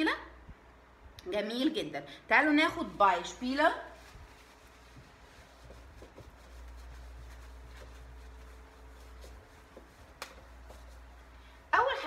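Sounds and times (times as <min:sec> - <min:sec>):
tissue rubbing whiteboard: 0:02.9 - 0:12.0.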